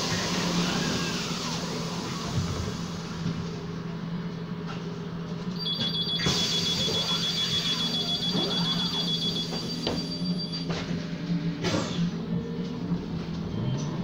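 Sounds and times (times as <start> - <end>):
electric bus humming: 0.0 - 14.0
high-pitched trilling beep: 5.6 - 10.7.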